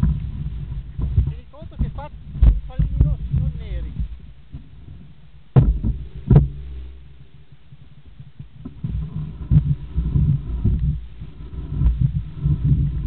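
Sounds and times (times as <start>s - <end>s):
bike knocking over stones: 0.0s - 4.7s, 5.5s - 6.7s
bike rolling on gravel: 0.0s - 13.0s.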